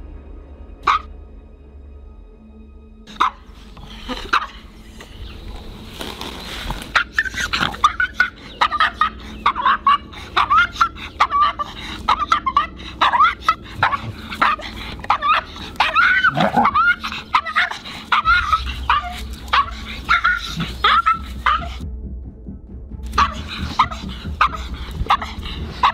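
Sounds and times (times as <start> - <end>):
small dog yapping: 0.8 - 1.1, 6.8 - 21.8, 23.1 - 25.9
small dog yelping: 0.8 - 1.1, 3.1 - 4.7, 6.8 - 21.8, 23.1 - 25.9.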